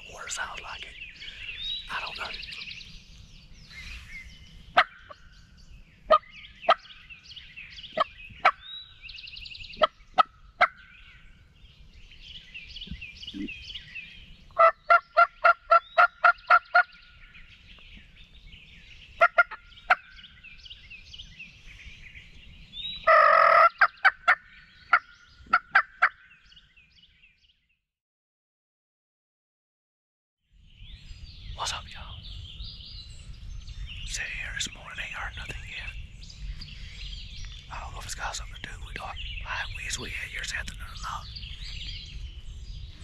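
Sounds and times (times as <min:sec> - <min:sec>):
turkey clucks: 0:14.6 - 0:16.9, 0:19.2 - 0:20.0
turkey yelps: 0:14.6 - 0:16.9, 0:23.1 - 0:26.2.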